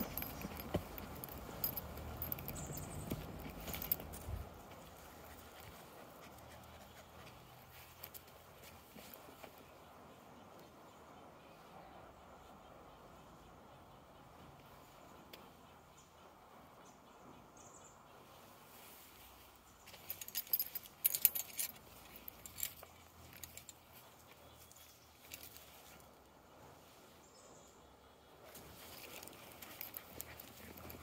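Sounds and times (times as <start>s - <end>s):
metallic jangling rattle: 0.0s - 6.5s, 19.9s - 24.0s, 28.8s - 31.0s.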